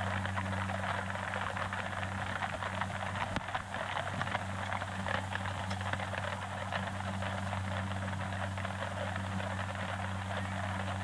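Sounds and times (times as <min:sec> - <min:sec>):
film soundtrack hiss and crackle: 0:00.0 - 0:11.0
low constant hum: 0:00.0 - 0:11.0.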